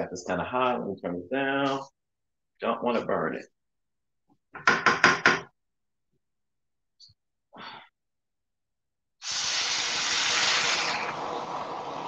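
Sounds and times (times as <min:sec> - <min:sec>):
loud sizzling hiss of steam: 0:09.2 - 0:12.0
water poured from a kettle: 0:09.2 - 0:12.0.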